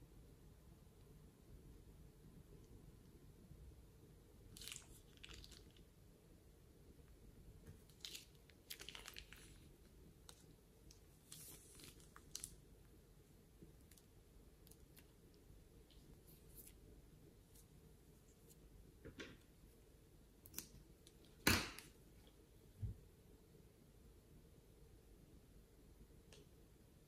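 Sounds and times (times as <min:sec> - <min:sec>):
slime squishing from piping bag: 0:04.5 - 0:05.9, 0:07.8 - 0:12.7.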